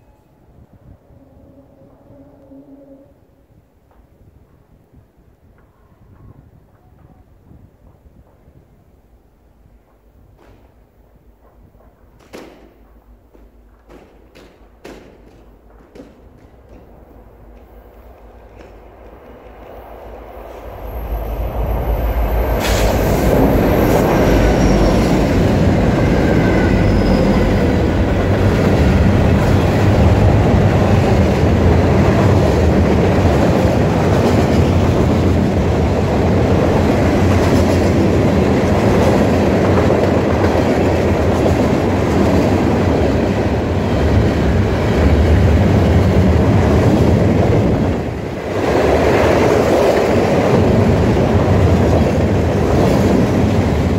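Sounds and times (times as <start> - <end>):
diesel locomotives passing: 0.0 - 3.6, 12.8 - 53.9
freight cars rumbling over rails: 14.6 - 53.9.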